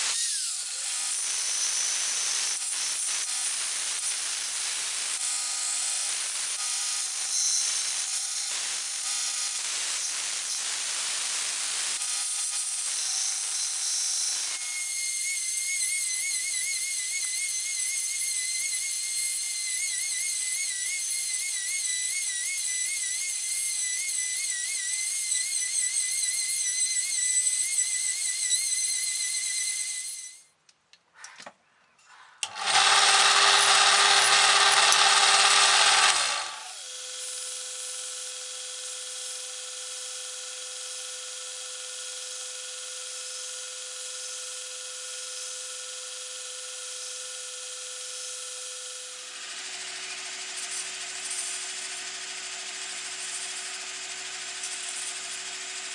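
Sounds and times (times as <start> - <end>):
rotary tool whining on metal: 0.0 - 30.5, 32.4 - 55.9
belt sander motor humming: 32.4 - 37.0
drill press drilling: 32.4 - 44.0.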